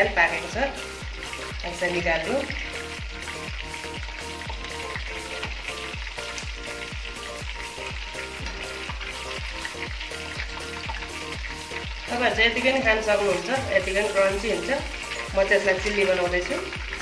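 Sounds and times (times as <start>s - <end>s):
background music with steady beat: 0.0s - 17.0s
hot oil sizzling: 0.0s - 17.0s.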